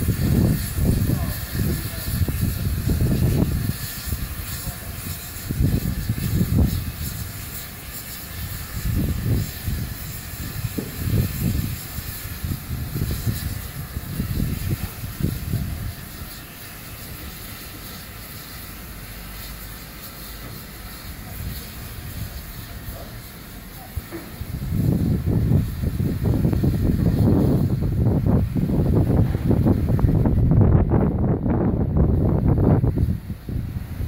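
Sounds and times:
steam hissing: 0:00.0 - 0:34.0
low rumbling: 0:24.4 - 0:34.0.

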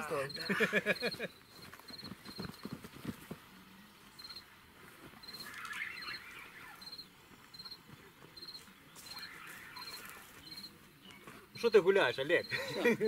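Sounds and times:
cricket chirping: 0:00.0 - 0:02.8, 0:04.2 - 0:04.5, 0:05.2 - 0:10.8, 0:11.6 - 0:13.0.

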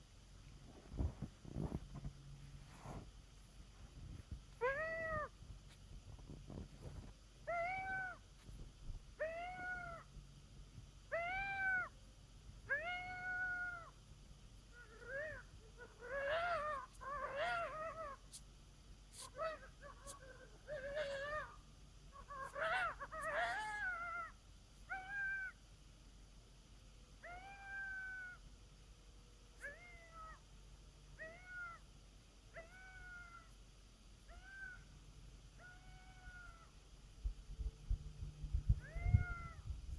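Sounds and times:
coyote howler call howls: 0:04.6 - 0:05.3, 0:07.4 - 0:08.2, 0:09.2 - 0:10.1, 0:11.1 - 0:12.0, 0:12.6 - 0:14.0, 0:14.7 - 0:18.3, 0:19.2 - 0:25.6, 0:27.2 - 0:28.4, 0:31.2 - 0:31.9, 0:32.5 - 0:33.6, 0:34.2 - 0:34.9, 0:35.5 - 0:36.8, 0:38.7 - 0:39.8
wavering yips from call: 0:19.2 - 0:21.6, 0:22.2 - 0:25.6.

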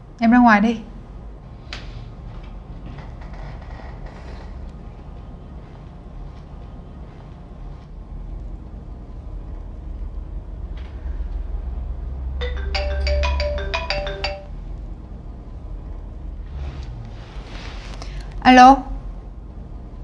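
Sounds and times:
steady low rumble: 0:04.4 - 0:12.3
phone ringtone melody: 0:12.4 - 0:14.5.

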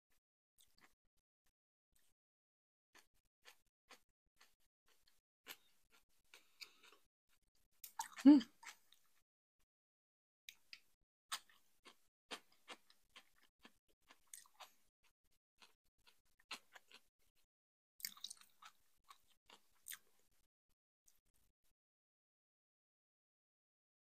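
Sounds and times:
close chewing of food: 0:03.0 - 0:09.2, 0:10.5 - 0:20.4.

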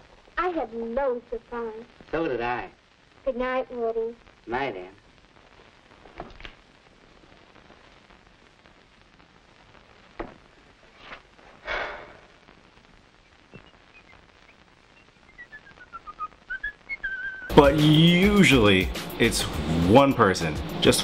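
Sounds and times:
film soundtrack hiss: 0:00.0 - 0:21.0
man whistling a tune: 0:15.3 - 0:17.8.

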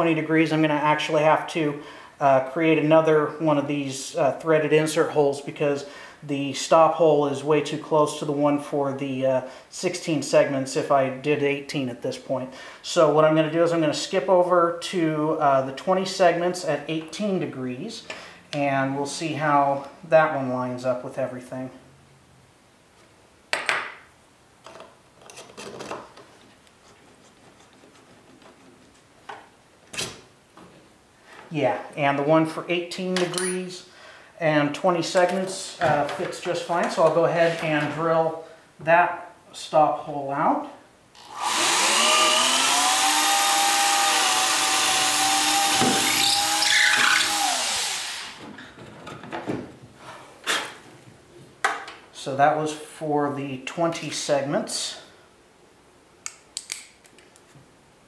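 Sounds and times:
power drill boring into wood: 0:41.2 - 0:48.4.

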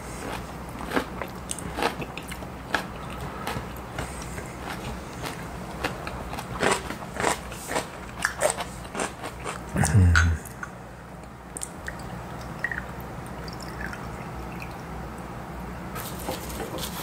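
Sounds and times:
crisp chewing and crunching: 0:00.0 - 0:09.8
low voice hum: 0:09.7 - 0:10.8.

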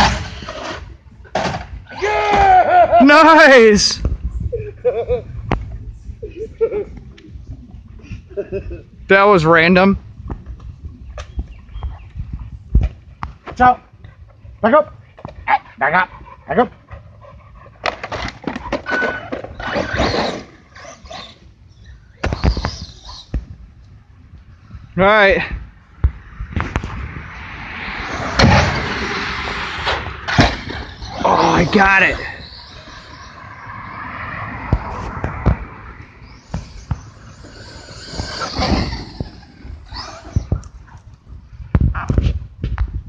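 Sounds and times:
rc car motor whine: 0:18.9 - 0:23.3, 0:30.6 - 0:34.1, 0:36.2 - 0:40.7.

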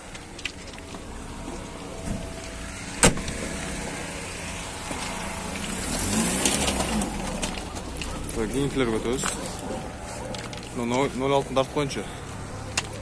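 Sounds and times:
car door slamming: 0:03.0 - 0:03.6.

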